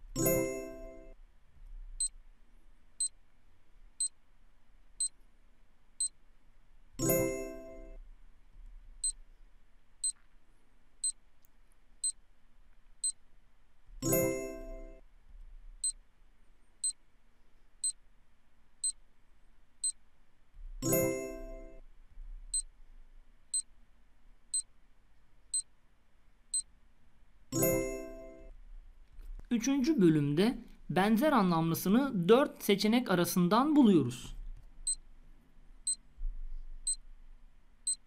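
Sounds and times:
electronic timer ticks: 0:10.0 - 0:10.2, 0:16.8 - 0:17.0, 0:18.8 - 0:19.0, 0:19.8 - 0:20.0, 0:36.8 - 0:37.0.

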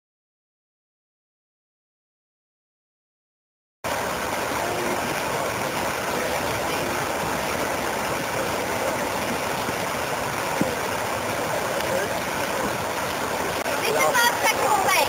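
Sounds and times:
city background rush: 0:04.1 - 0:15.0.

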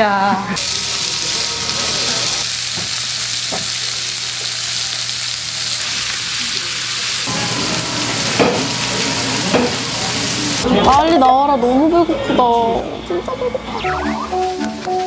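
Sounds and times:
pork sizzling on griddle: 0:00.6 - 0:10.9.

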